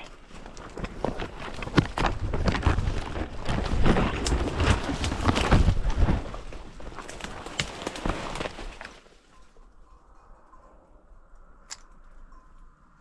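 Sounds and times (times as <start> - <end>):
leaves rustling: 0.0 - 9.6
twigs snapping: 0.5 - 9.0.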